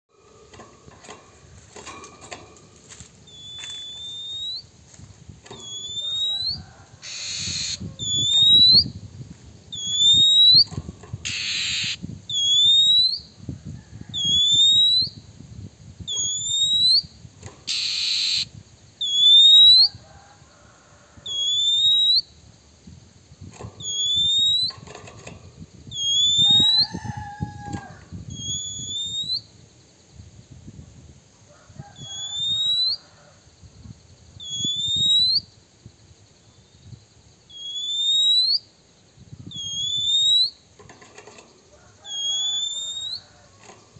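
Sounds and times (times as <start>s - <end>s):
bird rising whistle call: 3.3s - 4.7s, 5.6s - 9.0s, 9.7s - 13.3s, 14.1s - 15.2s, 16.1s - 17.1s, 17.7s - 20.0s, 21.2s - 22.3s, 23.8s - 24.8s, 25.9s - 29.5s, 32.0s - 33.0s, 34.4s - 35.5s, 37.5s - 38.7s, 39.5s - 40.6s, 42.1s - 43.3s
bird harsh rasping notes: 5.6s - 8.5s, 11.2s - 12.0s, 17.7s - 18.5s.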